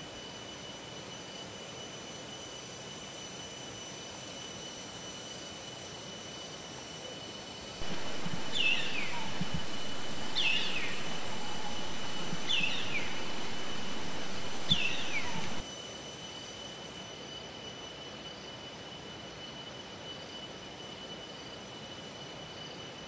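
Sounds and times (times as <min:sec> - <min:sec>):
background hiss: 0:07.8 - 0:15.6
bird calls falling in pitch: 0:07.8 - 0:15.6.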